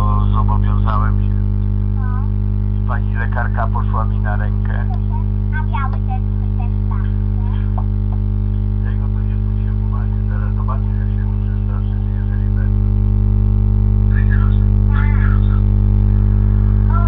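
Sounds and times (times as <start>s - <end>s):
faint voices: 0.0s - 13.0s
electrical mains hum: 0.0s - 17.0s.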